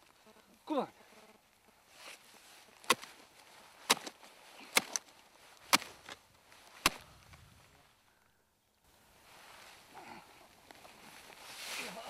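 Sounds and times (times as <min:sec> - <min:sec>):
spade striking ground: 0:02.8 - 0:03.1, 0:03.8 - 0:07.2.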